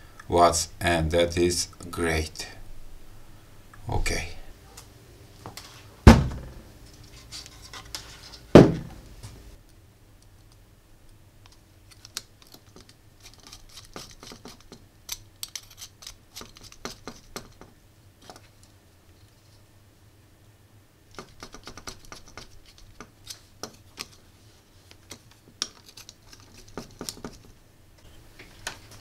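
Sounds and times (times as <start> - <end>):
thumps: 6.0 - 6.8, 8.6 - 9.0
screwdriver clicking and scratching: 11.4 - 18.4, 21.1 - 24.2, 24.9 - 27.5.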